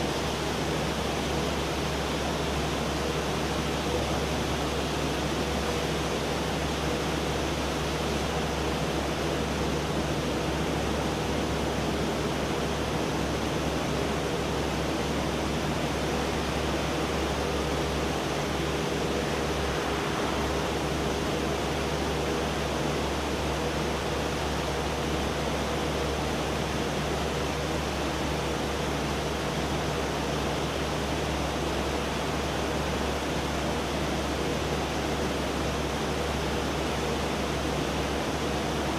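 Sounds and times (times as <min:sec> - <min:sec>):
machinery hiss: 0:18.4 - 0:22.9.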